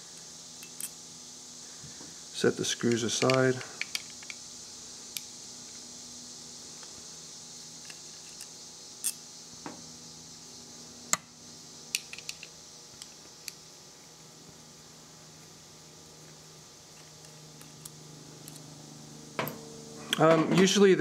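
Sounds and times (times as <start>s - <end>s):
faint steady hiss: 0.0s - 21.0s
small metal parts clicking: 2.9s - 4.4s.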